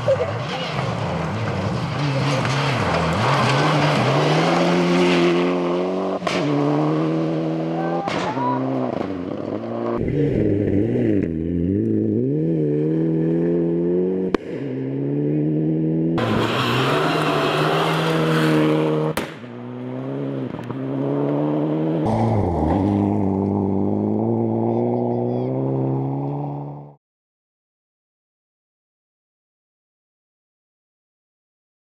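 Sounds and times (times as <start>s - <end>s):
gravel spray and tyre noise: 0.0s - 10.5s, 16.2s - 24.0s
rally car engine revving: 0.0s - 27.0s.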